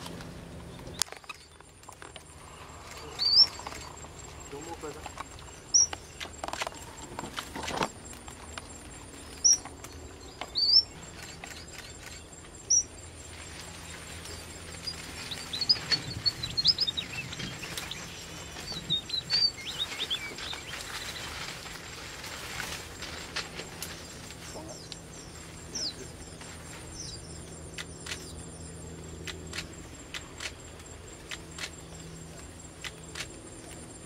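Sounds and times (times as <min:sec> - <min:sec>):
finches chirping and twittering: 0:02.3 - 0:07.2, 0:07.8 - 0:21.8, 0:23.8 - 0:30.7.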